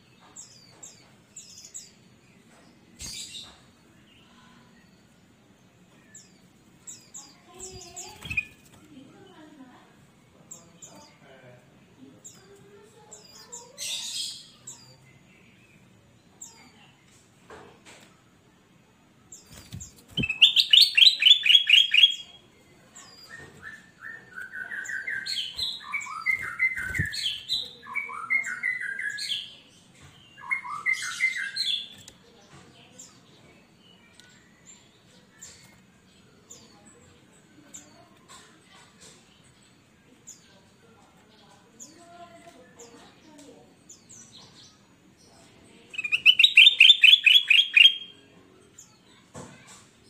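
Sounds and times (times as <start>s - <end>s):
bird singing: 19.3s - 32.1s, 45.8s - 49.2s
bird hopping on perch knocks: 19.5s - 20.6s.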